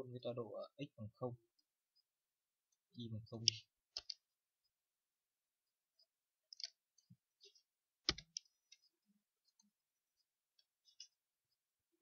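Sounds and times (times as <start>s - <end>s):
computer keyboard and mouse clicks: 3.9s - 4.2s, 6.5s - 6.8s, 8.0s - 8.8s.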